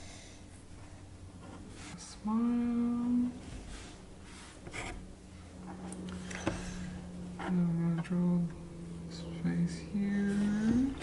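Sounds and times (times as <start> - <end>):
person humming: 7.4 - 11.0.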